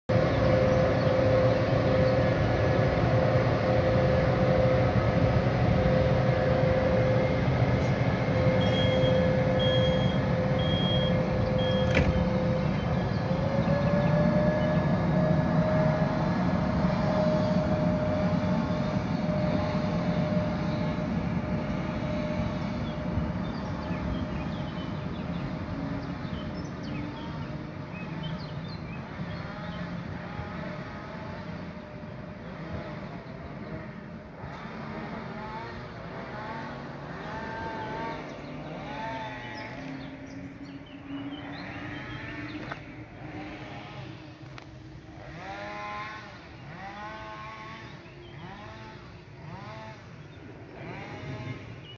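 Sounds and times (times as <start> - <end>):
train wheels rumbling on rails: 0.1 - 33.2
electric locomotive drive tone: 0.1 - 36.1.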